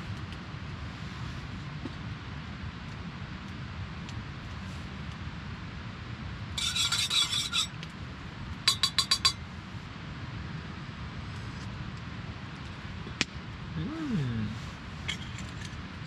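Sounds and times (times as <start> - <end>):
spoon scraping metal mug: 6.6 - 7.8, 8.7 - 9.4
spoon clinking against mug: 8.7 - 9.4.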